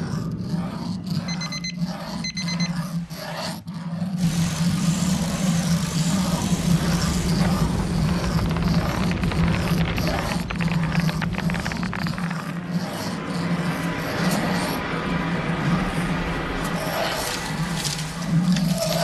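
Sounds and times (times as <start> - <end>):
rapid high electronic beeping: 1.3 - 2.8.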